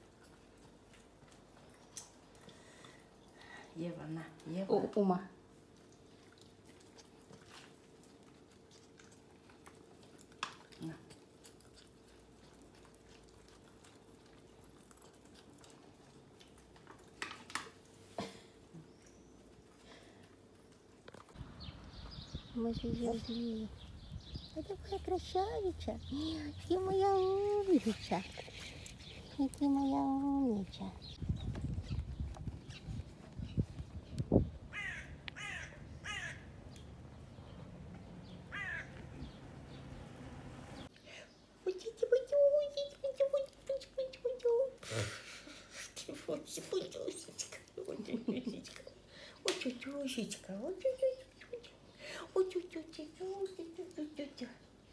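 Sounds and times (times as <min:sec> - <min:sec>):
crow cawing: 0:34.7 - 0:36.5, 0:38.5 - 0:39.0.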